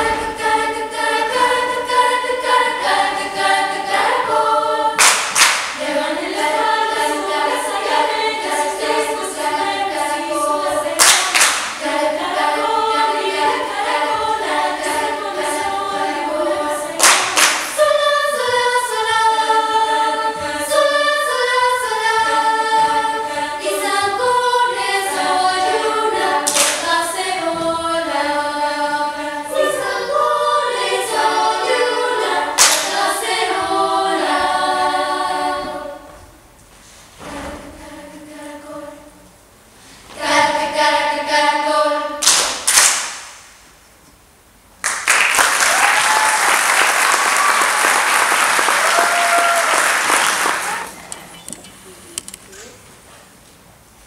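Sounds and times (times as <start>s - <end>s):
choir singing: 0.0s - 36.4s, 37.2s - 39.4s, 40.1s - 42.4s
sharp clap-like hit: 5.0s - 5.8s, 11.0s - 11.9s, 17.0s - 17.8s, 26.4s - 26.9s, 32.6s - 33.0s, 42.2s - 43.7s.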